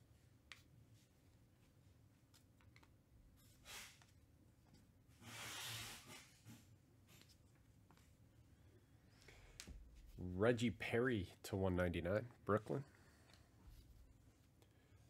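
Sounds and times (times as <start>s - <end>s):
cards sliding papery swish: 3.6s - 4.2s, 5.2s - 7.4s.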